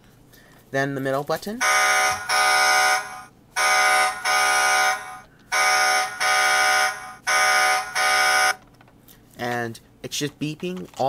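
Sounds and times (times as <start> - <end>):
toy truck electronic beeps: 1.6 - 8.6.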